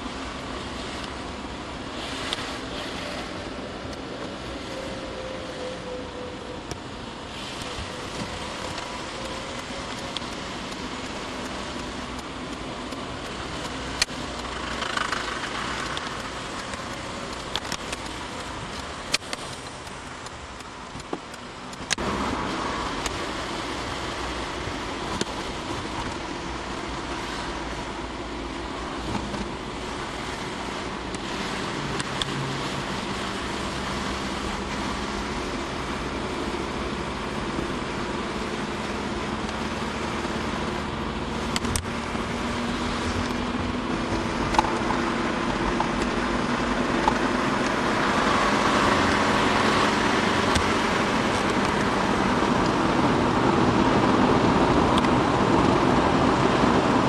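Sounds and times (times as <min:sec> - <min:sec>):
car engine and tyre noise: 0:00.0 - 0:57.0.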